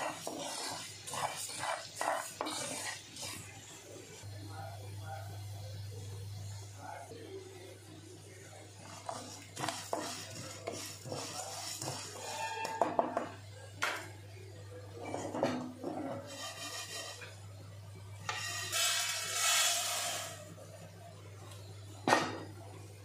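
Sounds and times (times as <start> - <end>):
wooden spatula scraping pan: 0.0 - 3.6, 8.8 - 13.4, 15.0 - 17.4, 18.3 - 20.4.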